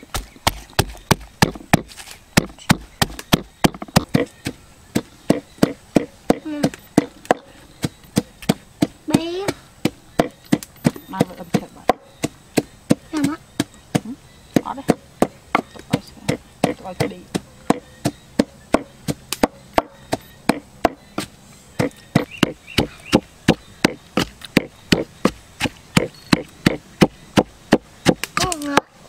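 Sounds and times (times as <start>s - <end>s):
wooden pestle pounding in mortar: 0.0s - 21.1s, 21.8s - 28.9s.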